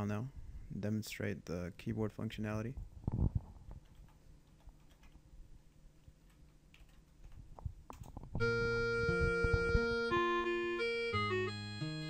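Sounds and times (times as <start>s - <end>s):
keyboard and mouse clicks: 3.7s - 8.4s.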